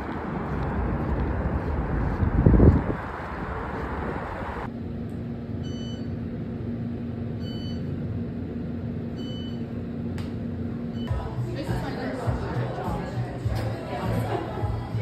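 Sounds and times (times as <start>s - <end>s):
wind buffeting microphone: 0.0s - 4.7s
low hum with held tone: 4.6s - 11.1s.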